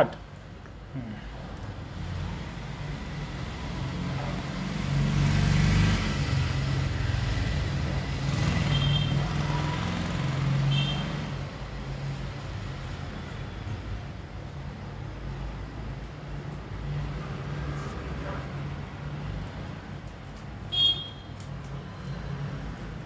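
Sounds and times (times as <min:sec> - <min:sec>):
road traffic rumble: 0:00.0 - 0:23.0.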